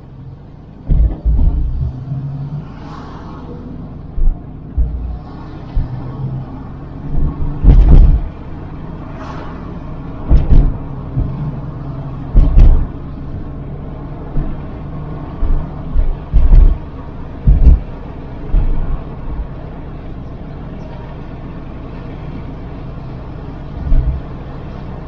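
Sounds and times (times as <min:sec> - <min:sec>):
car road rumble: 0:00.0 - 0:25.0
loud short low thumps: 0:00.9 - 0:02.0, 0:04.1 - 0:06.0, 0:07.1 - 0:08.4, 0:10.3 - 0:11.4, 0:12.3 - 0:12.9, 0:15.4 - 0:17.9.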